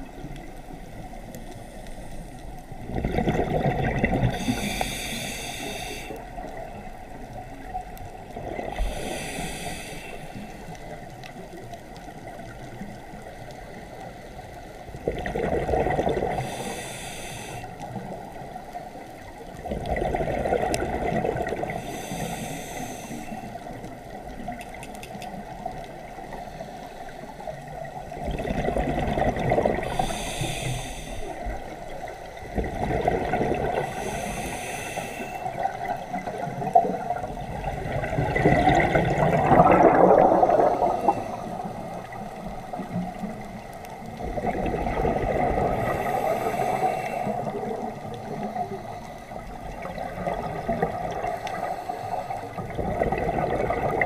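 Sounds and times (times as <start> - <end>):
exhaled bubbles gushing underwater: 2.8 - 5.0, 6.1 - 9.4, 14.8 - 16.9, 17.8 - 22.2, 27.5 - 30.6, 31.4 - 34.6, 35.4 - 54.0
regulator inhalation hiss: 4.3 - 6.3, 8.8 - 10.8, 16.3 - 18.1, 21.7 - 23.6, 29.8 - 31.7, 33.8 - 35.6, 45.8 - 47.8, 51.2 - 52.6.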